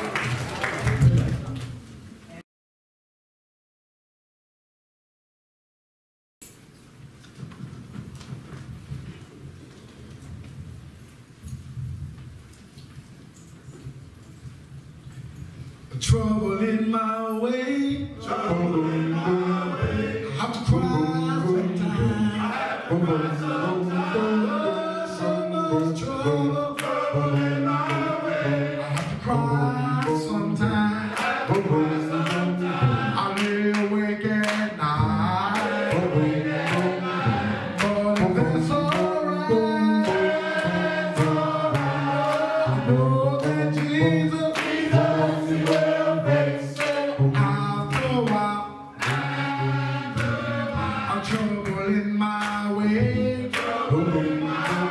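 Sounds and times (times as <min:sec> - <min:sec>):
men's choir singing: 0:17.2 - 0:54.9.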